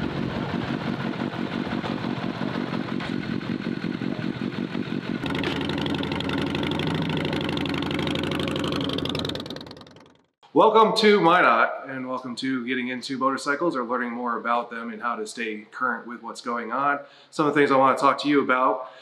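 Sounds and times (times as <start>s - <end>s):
motorcycle engine idling: 0.0s - 10.4s.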